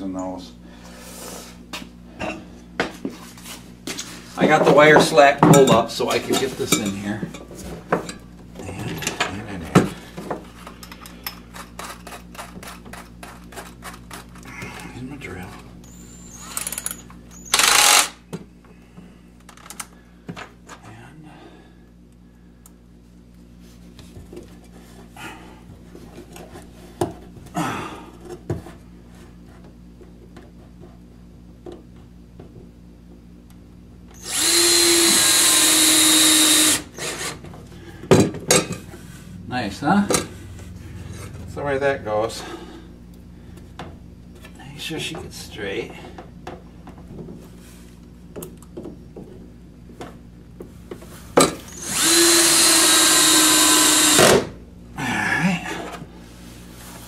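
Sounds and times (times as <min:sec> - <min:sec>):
cordless drill driving screw: 0:17.5 - 0:18.2, 0:34.2 - 0:37.4, 0:51.7 - 0:54.4.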